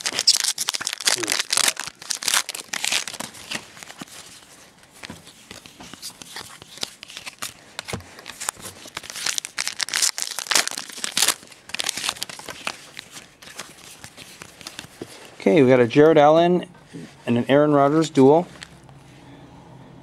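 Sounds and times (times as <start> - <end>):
foil wrapper crinkling and tearing: 0.0 - 4.4, 6.0 - 15.0.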